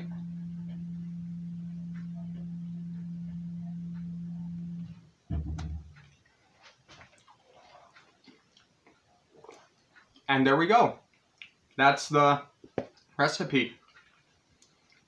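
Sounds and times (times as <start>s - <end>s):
steady low hum: 0.0s - 6.2s
dull thump: 5.3s - 6.0s.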